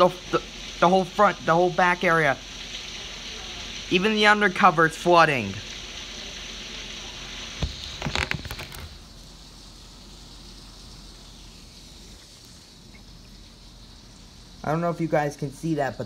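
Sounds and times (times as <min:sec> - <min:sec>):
heavy rain pouring: 0:00.0 - 0:16.0.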